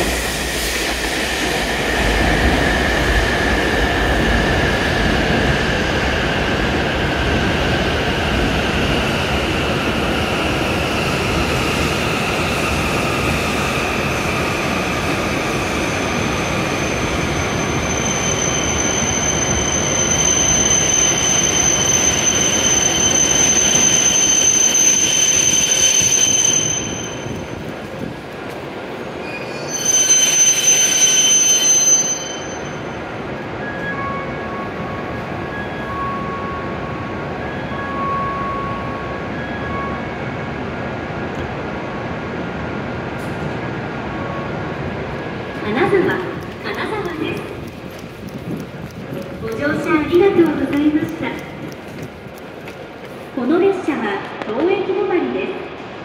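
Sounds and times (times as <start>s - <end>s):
train whine: 0.0s - 56.0s
high brake squeal: 15.3s - 27.6s, 29.2s - 34.9s.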